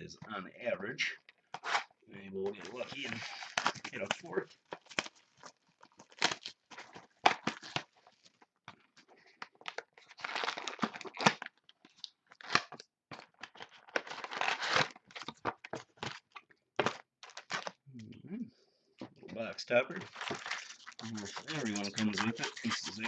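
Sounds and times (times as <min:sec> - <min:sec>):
wrapper crinkling and tearing: 0:02.5 - 0:08.4, 0:09.2 - 0:17.8, 0:20.0 - 0:23.0.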